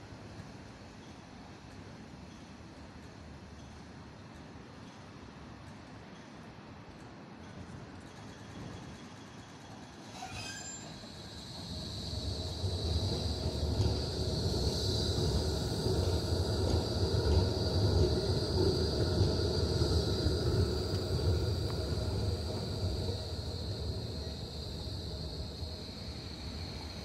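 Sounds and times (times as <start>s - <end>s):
tram wheels rumbling on rails: 0.0s - 27.0s
high whine: 10.9s - 27.0s.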